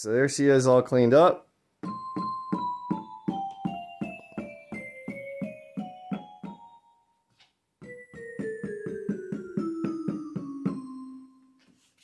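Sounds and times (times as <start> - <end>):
electronic mallet keyboard notes: 1.8 - 7.2, 7.8 - 11.6.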